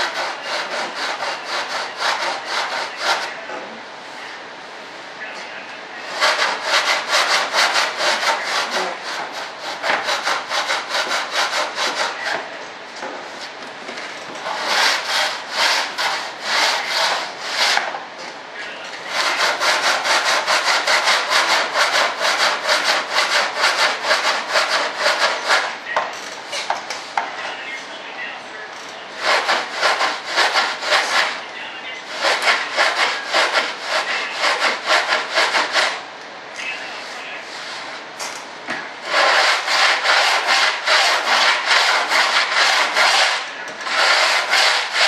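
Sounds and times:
sandpaper rasping: 0.0 - 3.3, 6.1 - 12.4, 14.4 - 17.8, 19.1 - 25.7, 29.2 - 31.4, 32.1 - 36.0, 39.0 - 45.0.

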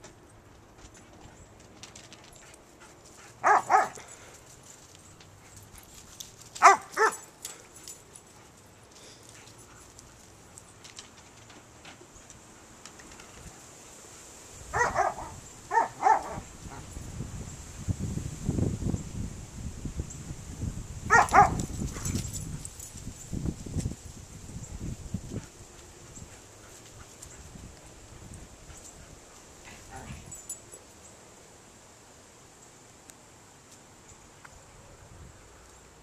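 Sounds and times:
dog barking: 3.4 - 4.0, 6.6 - 7.2, 14.7 - 16.8, 21.1 - 21.6.

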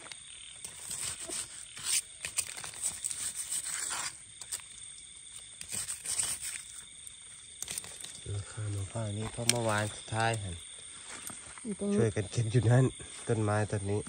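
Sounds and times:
knife scraping in gravelly soil: 0.6 - 10.4
mushrooms rustling pulled out: 0.6 - 10.6.

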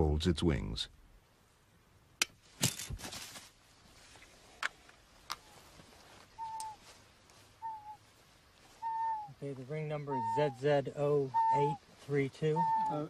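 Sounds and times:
whistled call: 6.4 - 6.8, 7.6 - 8.0, 8.8 - 11.8, 12.5 - 13.0.

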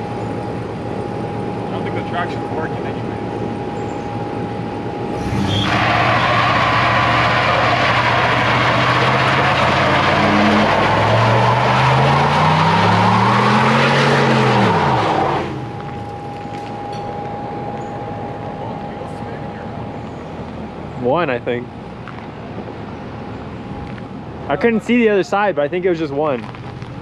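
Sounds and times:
tire screeching: 0.0 - 23.7
pickup engine revving: 5.1 - 16.0.

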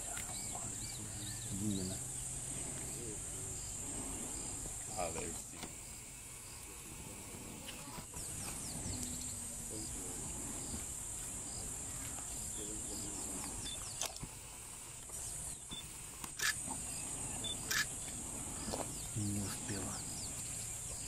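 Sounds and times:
high-pitched insect drone: 0.0 - 14.3
sharp clicks: 13.4 - 14.3, 15.7 - 16.7, 17.5 - 18.2.

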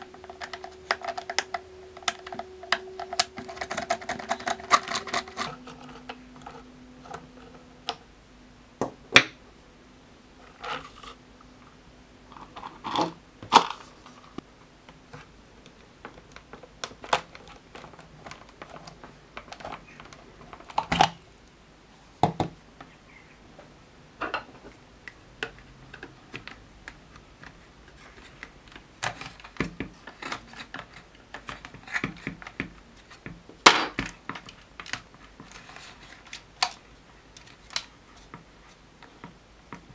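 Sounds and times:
plastic clicks and scrapes: 0.0 - 8.0, 15.1 - 21.2, 25.4 - 36.8.

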